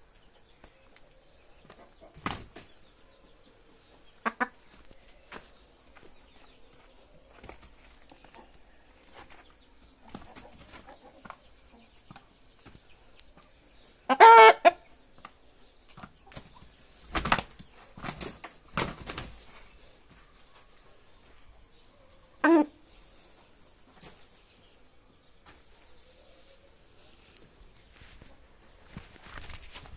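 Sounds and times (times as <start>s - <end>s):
wing flapping: 16.3s - 19.5s.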